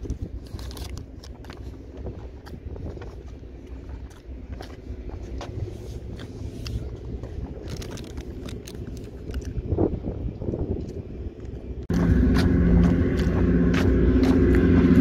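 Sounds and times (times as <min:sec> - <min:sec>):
steady low rumble: 0:00.0 - 0:15.0
plastic bag crinkling: 0:07.4 - 0:09.5.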